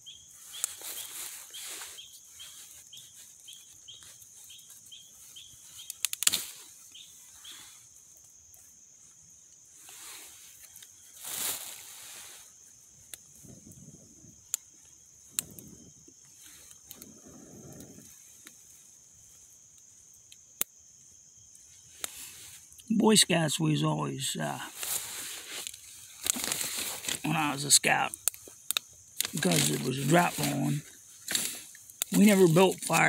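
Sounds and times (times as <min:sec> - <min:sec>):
bird chirping: 0:00.0 - 0:06.0, 0:06.9 - 0:07.8
wood fire crackling and popping: 0:00.0 - 0:11.6, 0:12.5 - 0:20.8, 0:24.2 - 0:33.0.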